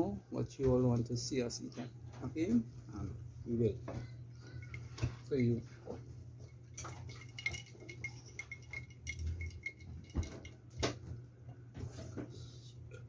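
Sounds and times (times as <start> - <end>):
steady low hum: 0.0 - 13.0
glass jar knocking on table: 6.9 - 11.0.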